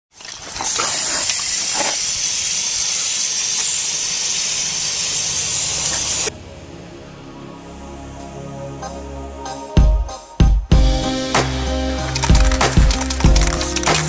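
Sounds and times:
spray paint can hissing: 0:00.8 - 0:06.3, 0:11.4 - 0:14.0.

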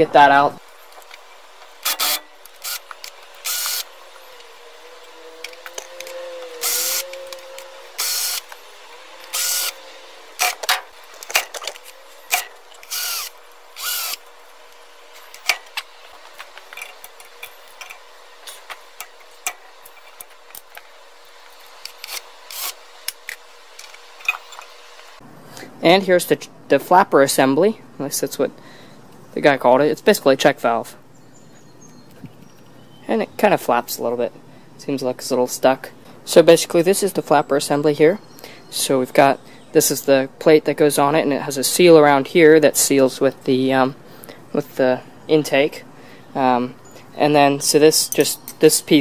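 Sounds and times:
metal handling noises: 0:00.0 - 0:13.6, 0:14.7 - 0:25.1
power drill spinning: 0:00.7 - 0:20.8, 0:21.4 - 0:25.2.

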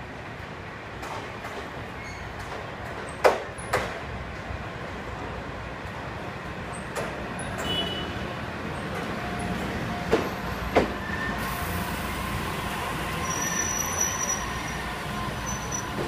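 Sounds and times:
high brake squeal: 0:02.0 - 0:02.4, 0:10.4 - 0:12.2, 0:13.0 - 0:16.0
train wheels rumbling: 0:06.8 - 0:16.0.

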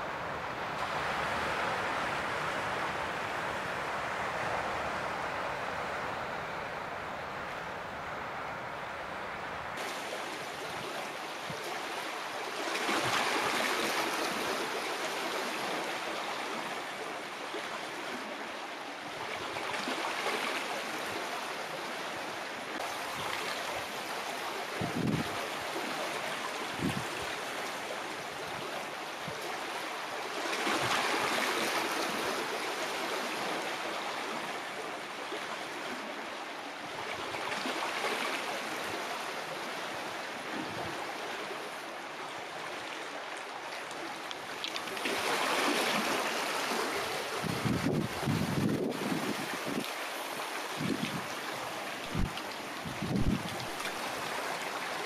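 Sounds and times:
water lapping among rocks: 0:42.5 - 0:55.0.

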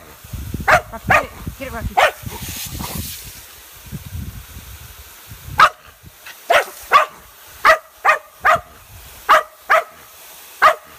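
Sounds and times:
dog barking: 0:00.6 - 0:01.4, 0:02.0 - 0:02.3, 0:05.6 - 0:05.9, 0:06.5 - 0:10.0, 0:10.6 - 0:10.9.

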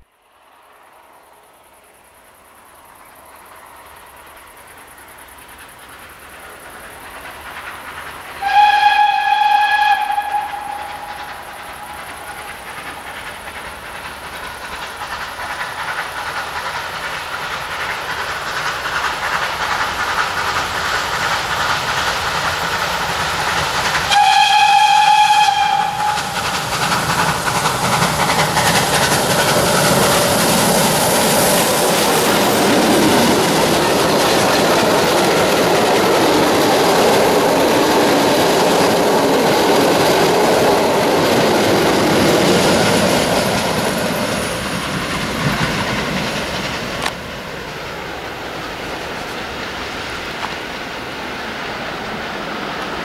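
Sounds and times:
train running on rails: 0:00.0 - 0:53.0
steam locomotive whistle: 0:08.4 - 0:13.1, 0:24.0 - 0:27.2.

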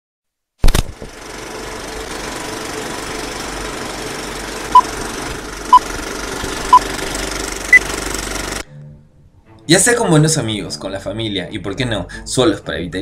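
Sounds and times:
film projector running: 0:01.0 - 0:08.6.

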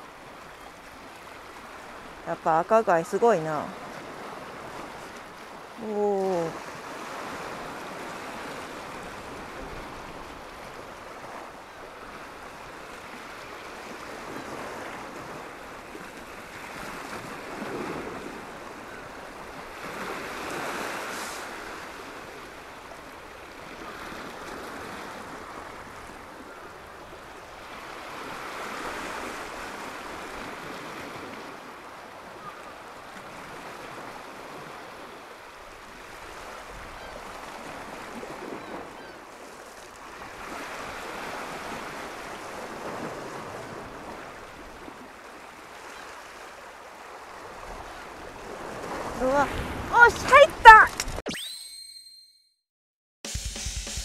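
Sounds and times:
sea waves washing on rocky shore: 0:00.0 - 0:26.4, 0:33.2 - 0:45.7.

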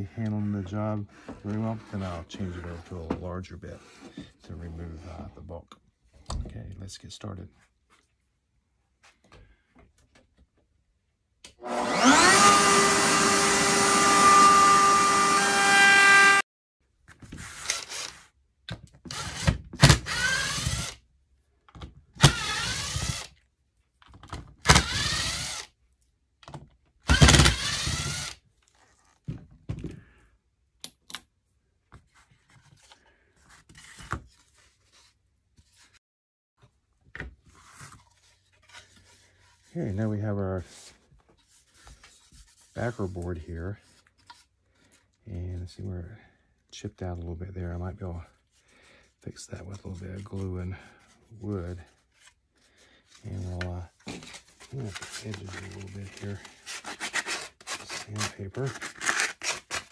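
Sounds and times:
electric router running: 0:11.6 - 0:16.4
faint handling noise: 0:51.3 - 0:56.6.

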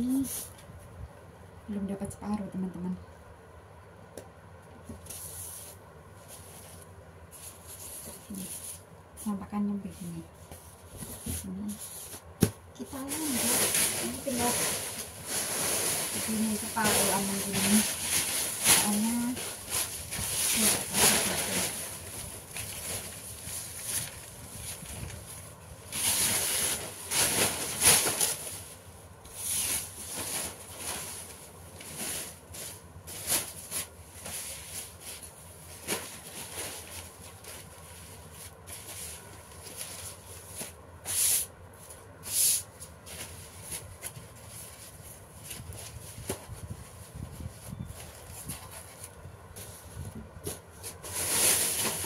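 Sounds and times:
paper rustling and crinkling: 0:10.4 - 0:40.8, 0:42.8 - 0:52.0.

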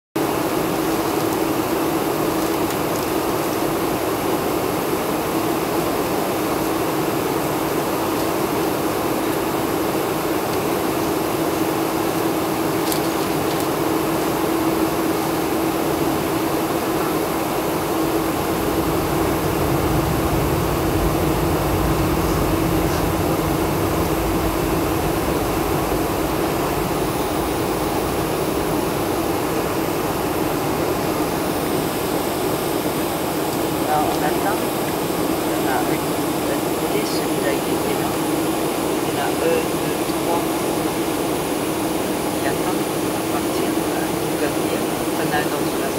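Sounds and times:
air-conditioning rushing: 0:00.2 - 0:45.9
jet engines at low power: 0:00.2 - 0:45.9
steady hum: 0:00.2 - 0:45.9
deep low rumble: 0:17.8 - 0:32.2.

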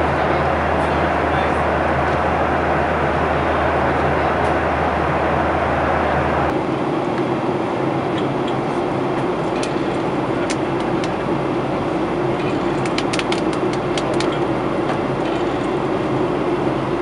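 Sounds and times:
airflow rushing: 0:00.0 - 0:08.1
constant low hum: 0:00.0 - 0:17.0
jet engine drone: 0:00.0 - 0:17.0.

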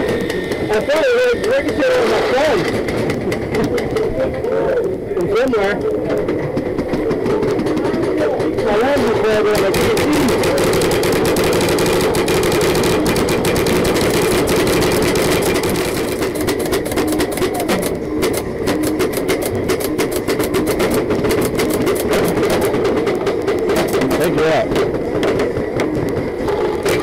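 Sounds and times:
paintball markers firing: 0:08.9 - 0:25.5.

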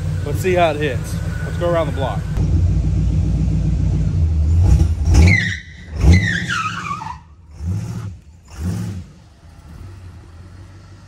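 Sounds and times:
truck engine surging: 0:00.0 - 0:11.0
tires squealing: 0:04.6 - 0:10.0.

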